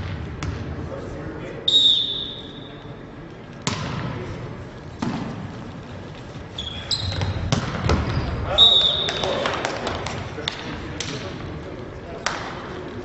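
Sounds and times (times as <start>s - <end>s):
volleyball hits: 3.6s - 4.2s, 5.0s - 5.6s, 7.1s - 11.4s
shoe squeaks: 6.5s - 9.4s.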